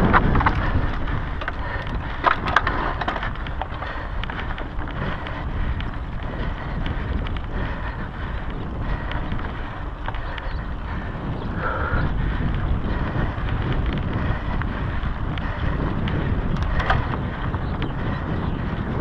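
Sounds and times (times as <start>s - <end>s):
bike rattling: 0.0s - 19.0s
bike tyres on dirt: 0.0s - 19.0s
wind rumbling on microphone: 0.0s - 19.0s
sharp clicks and knocks: 16.5s - 17.2s.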